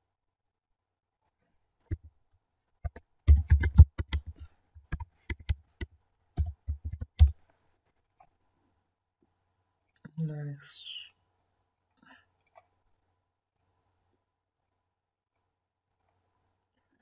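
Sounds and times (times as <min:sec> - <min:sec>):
computer keyboard typing: 0:02.8 - 0:07.4.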